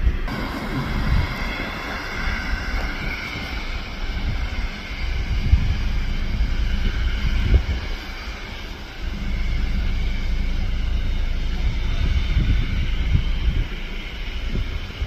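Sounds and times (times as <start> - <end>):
jet engines whining: 0.0 - 15.0
low rumble: 0.0 - 15.0
wind buffeting microphone: 0.0 - 15.0.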